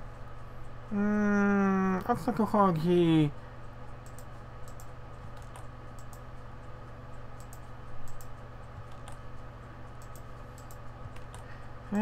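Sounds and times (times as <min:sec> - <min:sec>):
electrical hum: 0:00.0 - 0:12.0
computer mouse clicks: 0:03.9 - 0:06.5, 0:07.2 - 0:11.5.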